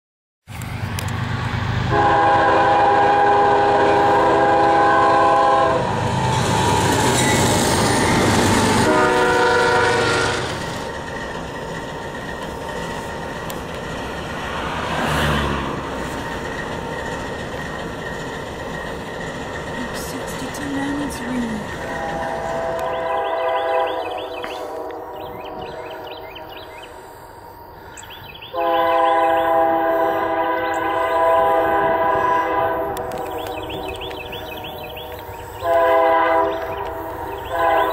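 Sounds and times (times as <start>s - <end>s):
train rumbling past on rails: 0.5s - 37.9s
locomotive air horn: 1.9s - 6.0s, 8.8s - 10.6s, 21.8s - 26.7s, 28.5s - 33.8s, 35.6s - 36.8s, 37.4s - 37.9s.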